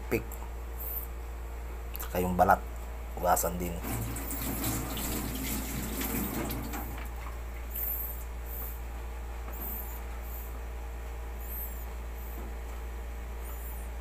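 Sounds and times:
tap water running into sink: 0:03.8 - 0:07.0
short high squeaks: 0:07.8 - 0:08.8, 0:09.5 - 0:10.5, 0:11.4 - 0:12.4, 0:13.4 - 0:14.0.

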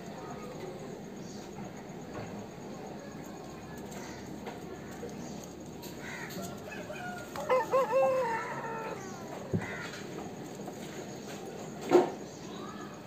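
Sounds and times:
rooster crowing: 0:06.1 - 0:10.0.

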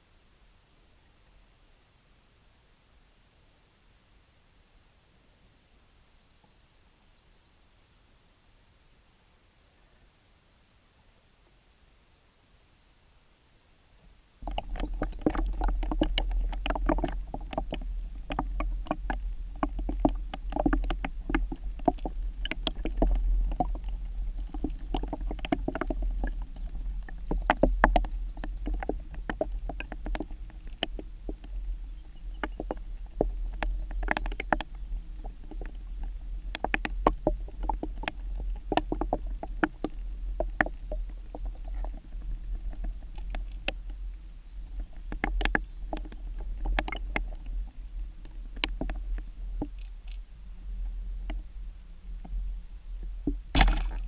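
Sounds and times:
underwater clicks and knocks: 0:14.4 - 0:50.2, 0:50.8 - 0:51.5, 0:53.0 - 0:54.0
underwater water rumble: 0:14.4 - 0:54.0.

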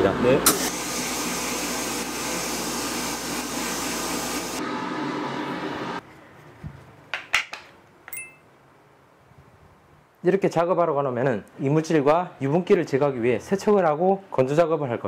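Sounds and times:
sandblaster hissing: 0:00.6 - 0:04.6.

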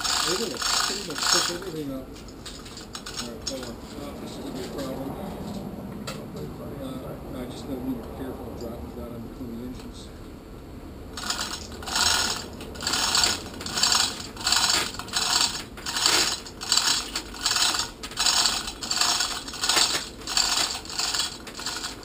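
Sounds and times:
chain hoist ratcheting: 0:00.0 - 0:04.0, 0:11.2 - 0:22.0.

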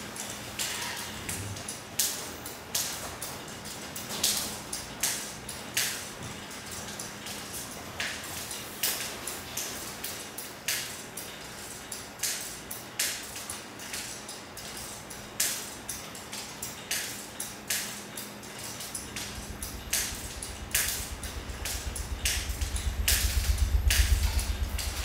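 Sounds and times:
steady low hum: 0:13.8 - 0:25.0.

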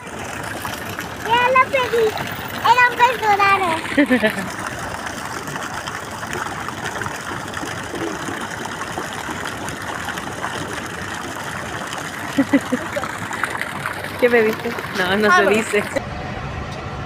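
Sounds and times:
fountain water splashing: 0:00.0 - 0:16.0.

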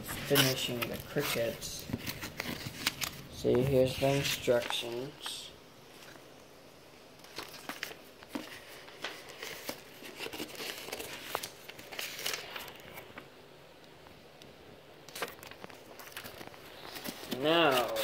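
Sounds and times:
paper and cardboard rustling: 0:00.0 - 0:05.3, 0:07.2 - 0:13.3, 0:15.1 - 0:18.0.

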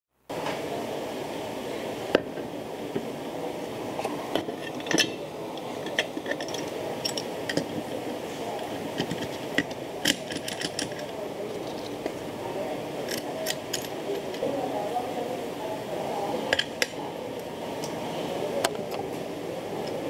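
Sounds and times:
steady hum: 0:00.2 - 0:20.0
metal parts clinking: 0:04.4 - 0:07.9, 0:08.6 - 0:12.1, 0:13.0 - 0:14.5.

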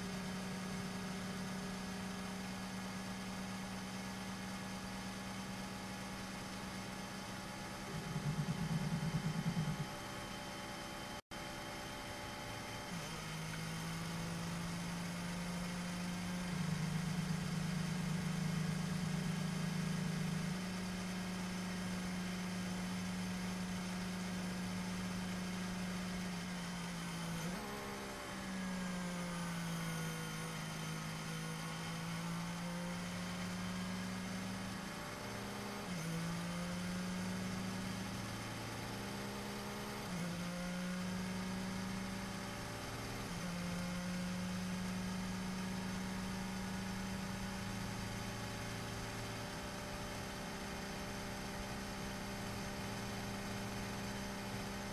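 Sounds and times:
race car engine idling: 0:07.3 - 0:10.6, 0:15.9 - 0:21.1.

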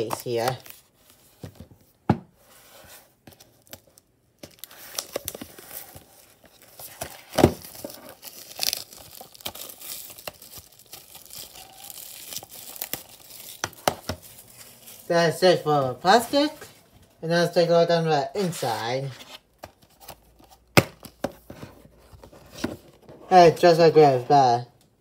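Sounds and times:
plastic shrink wrap crinkling: 0:03.4 - 0:15.1.

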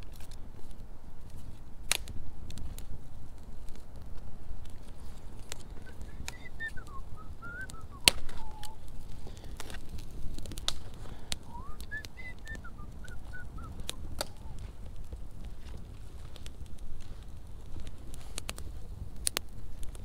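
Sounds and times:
campfire crackling and popping: 0:00.0 - 0:20.0
warbling whistle: 0:05.8 - 0:08.8, 0:11.5 - 0:14.6.

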